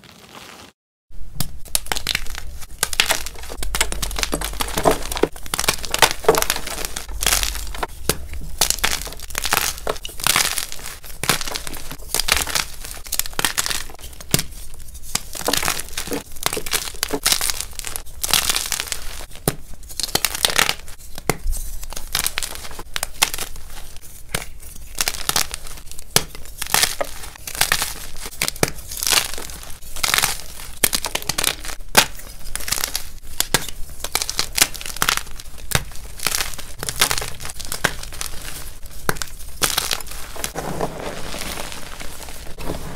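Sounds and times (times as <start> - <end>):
paper wrappers crinkling: 1.8 - 14.2, 33.8 - 42.9
chalk crunching by hand: 1.8 - 19.3, 19.9 - 42.9.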